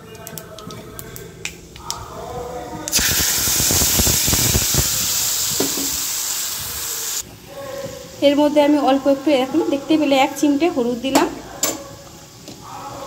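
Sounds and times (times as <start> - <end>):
fruit pulp sizzling in hot oil: 2.9 - 13.0.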